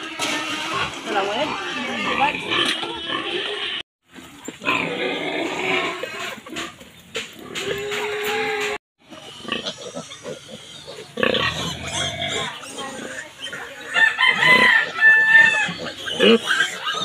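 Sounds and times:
piglets calling: 0:07.4 - 0:17.0.

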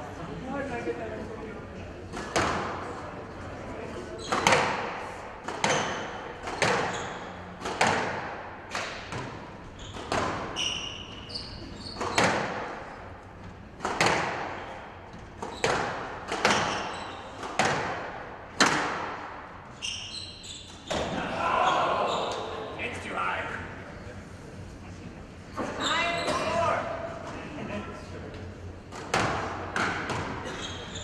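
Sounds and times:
squash ball hits: 0:04.3 - 0:10.6, 0:11.9 - 0:12.7, 0:13.8 - 0:14.7, 0:15.4 - 0:19.4, 0:28.9 - 0:30.5
shoes squeaking on floor: 0:05.6 - 0:07.6, 0:09.6 - 0:12.5, 0:15.4 - 0:17.5, 0:19.7 - 0:22.6, 0:25.5 - 0:26.7, 0:30.3 - 0:31.0.

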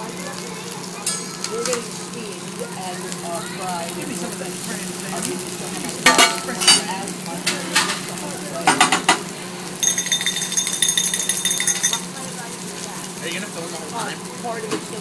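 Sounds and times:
vegetables sizzling on griddle: 0:00.0 - 0:15.0
metal spatula clanking: 0:01.0 - 0:01.9, 0:06.0 - 0:06.9, 0:09.8 - 0:12.1
fast ringing rattle: 0:09.8 - 0:12.2.

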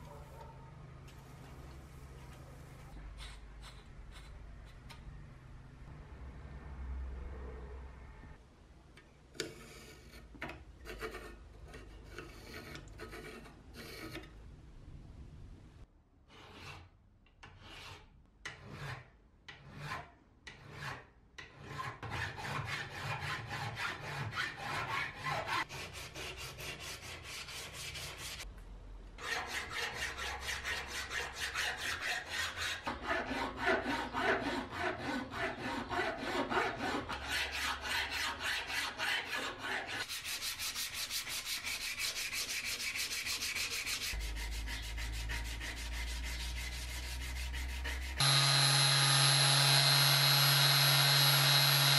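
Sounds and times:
file scraping steel: 0:09.4 - 0:14.4, 0:16.2 - 0:28.4, 0:29.2 - 0:51.9.

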